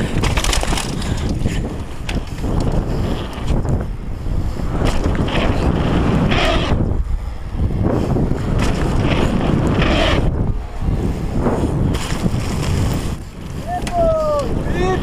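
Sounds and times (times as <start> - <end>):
tyres rumbling over gravel: 0.0 - 3.7
wind buffeting microphone: 0.0 - 15.0.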